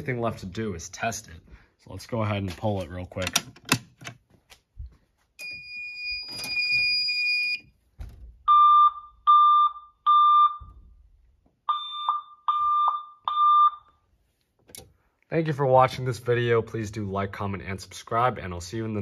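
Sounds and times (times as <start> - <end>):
high-pitched alarm beep: 8.5 - 10.8, 11.7 - 13.9.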